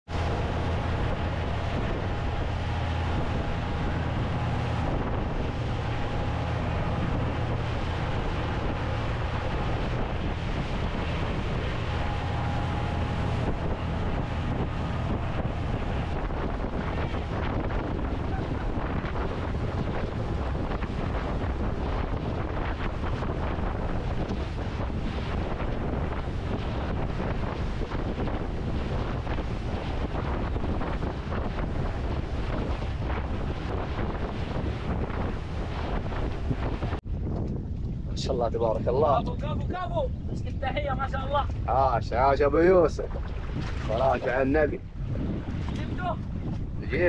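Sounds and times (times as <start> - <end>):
rushing water: 0.0 - 37.0, 40.6 - 47.0
outboard motor droning: 0.0 - 47.0
wind buffeting microphone: 0.0 - 47.0.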